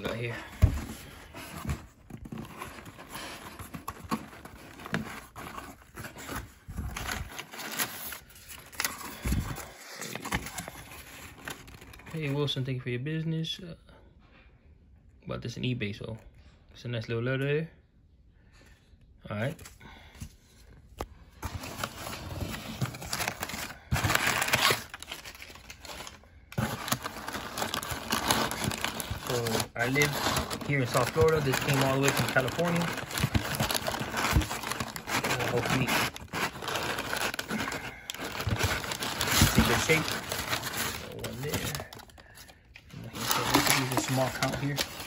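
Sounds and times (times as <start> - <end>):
cardboard flaps scraping and rustling: 21.4 - 37.6, 38.2 - 42.1, 43.1 - 45.0.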